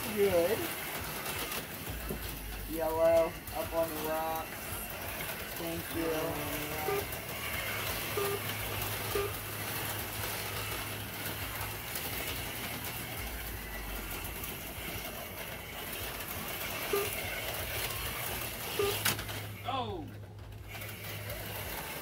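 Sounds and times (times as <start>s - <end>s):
slot car motors whirring: 0.0s - 22.0s.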